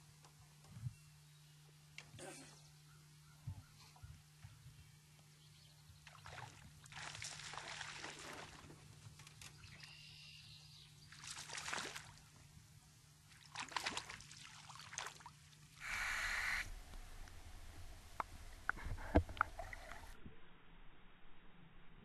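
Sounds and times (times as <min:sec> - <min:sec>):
water sloshing and splashing: 0:06.0 - 0:09.5, 0:11.1 - 0:12.3, 0:13.3 - 0:15.8, 0:18.8 - 0:20.2.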